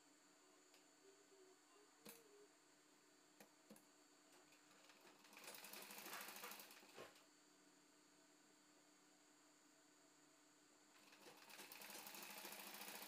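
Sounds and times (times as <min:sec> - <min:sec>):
sewing machine stitching: 0:04.7 - 0:07.2, 0:11.0 - 0:13.0.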